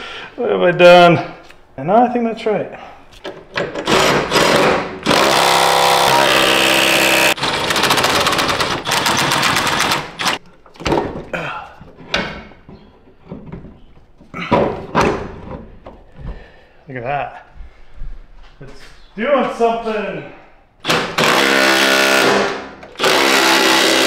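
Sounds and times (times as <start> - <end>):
power tool whirring and hammering: 3.6 - 10.4, 20.8 - 24.0.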